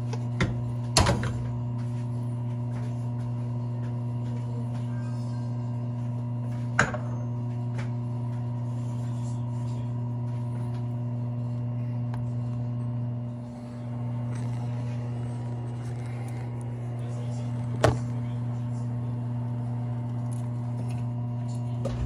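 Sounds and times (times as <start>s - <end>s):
appliance electrical hum: 0.0s - 22.0s.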